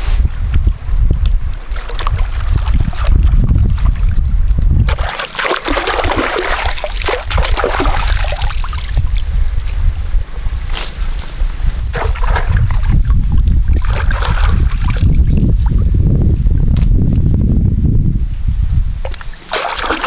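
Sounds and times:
wind rumbling on microphone: 0.0s - 20.0s
water splashing and sloshing: 1.5s - 9.4s, 11.9s - 15.9s, 19.0s - 20.0s.

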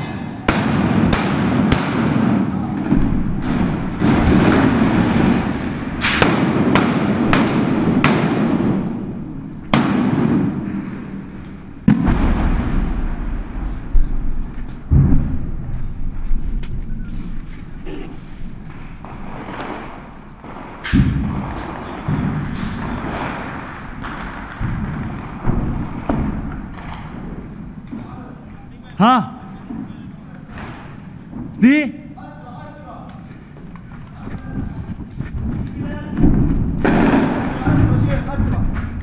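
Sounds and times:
echoing rifle shots: 0.4s - 14.3s, 18.6s - 27.8s, 36.3s - 38.0s.

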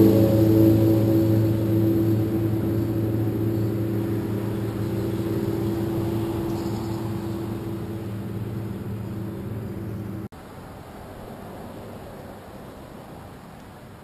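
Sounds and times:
low engine drone: 0.0s - 10.3s.

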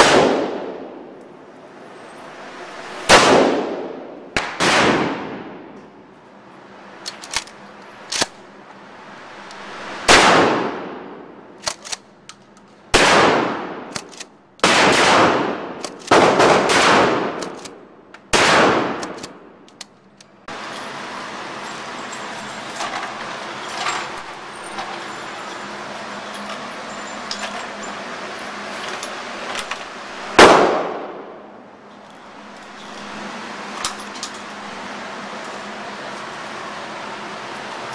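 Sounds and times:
shotgun shots echoing: 0.0s - 1.0s, 3.1s - 5.6s, 10.1s - 11.1s, 13.0s - 17.7s, 18.3s - 19.2s, 30.4s - 31.4s.

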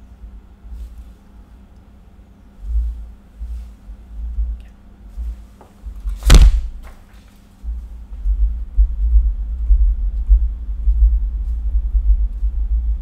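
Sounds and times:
faint steady hum: 0.0s - 13.0s
loud uneven low rumble: 7.7s - 13.0s.

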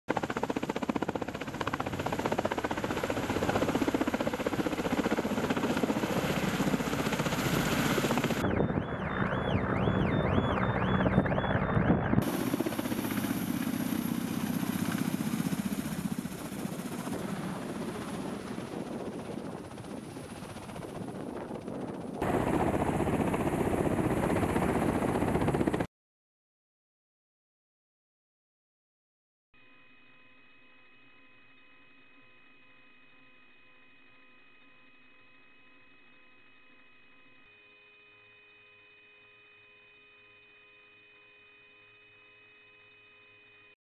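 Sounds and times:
helicopter rotor and turbine noise: 0.1s - 25.9s
wavering high whine: 1.7s - 24.4s, 29.6s - 43.8s.

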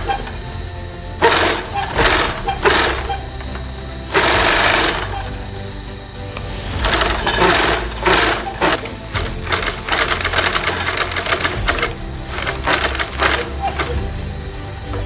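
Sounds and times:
sewing machine needle chatter: 1.2s - 3.3s, 4.1s - 5.3s, 6.8s - 14.0s.

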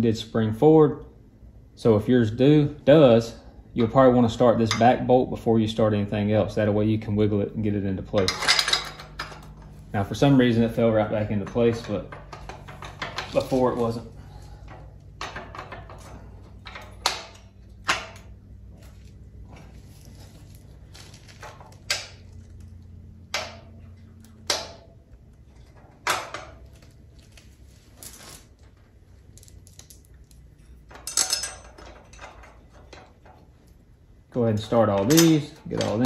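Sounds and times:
steady low hum: 0.0s - 36.0s
metal clicks and clinks: 29.6s - 33.4s.

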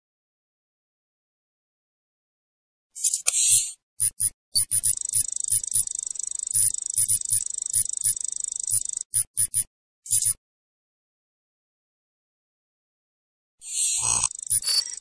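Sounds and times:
fast high-pitched trill: 4.0s - 10.3s, 13.8s - 15.0s
short digital blips with thumps: 4.0s - 10.3s, 13.7s - 15.0s.

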